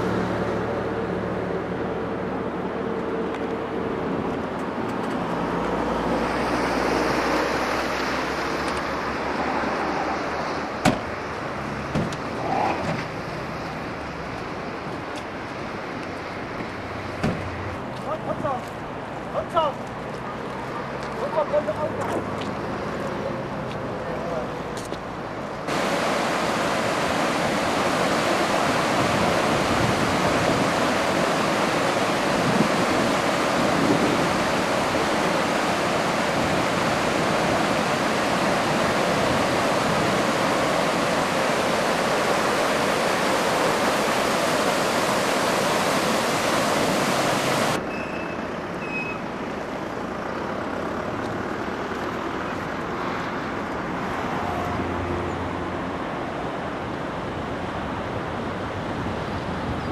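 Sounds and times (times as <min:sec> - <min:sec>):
floodwater rushing: 0:03.6 - 0:19.4, 0:25.2 - 0:47.8.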